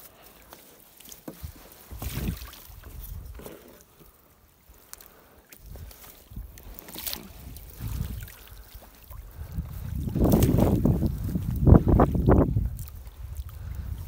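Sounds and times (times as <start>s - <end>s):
water splashing: 0.4s - 3.4s, 5.4s - 13.9s.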